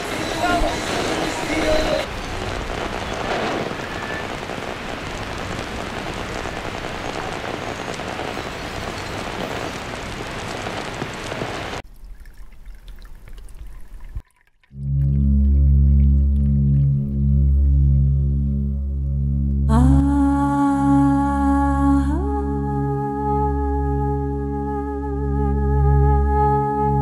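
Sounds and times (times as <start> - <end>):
steady hiss: 0.0 - 11.8.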